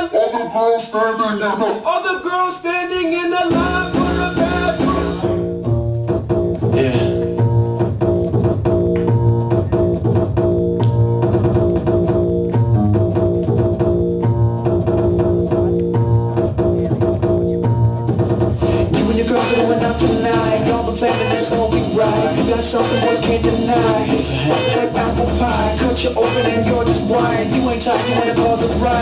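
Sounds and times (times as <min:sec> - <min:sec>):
dance music with deep bass: 0:03.5 - 0:05.6, 0:14.3 - 0:29.0.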